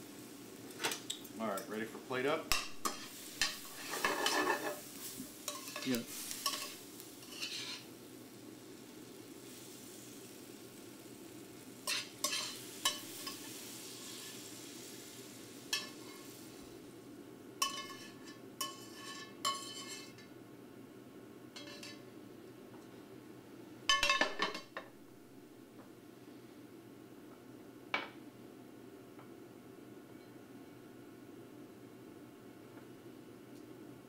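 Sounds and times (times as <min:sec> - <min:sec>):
metal tongs clinking on pan: 0:02.5 - 0:07.9, 0:11.8 - 0:14.3, 0:15.7 - 0:16.3, 0:17.6 - 0:20.3, 0:21.6 - 0:22.0, 0:23.9 - 0:24.7.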